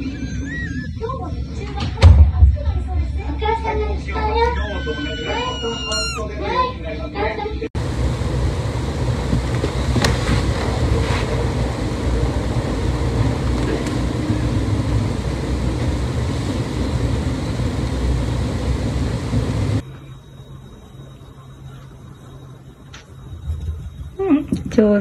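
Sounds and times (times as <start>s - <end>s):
low rumble: 0.0s - 4.5s, 7.8s - 19.8s.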